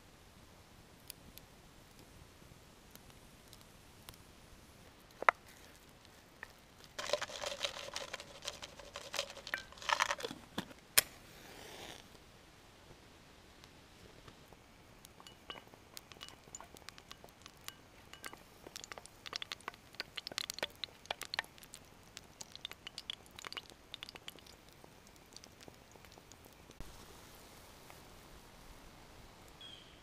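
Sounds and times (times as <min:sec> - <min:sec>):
utensils clinking on metal bowl: 0:07.0 - 0:10.3, 0:15.2 - 0:21.4.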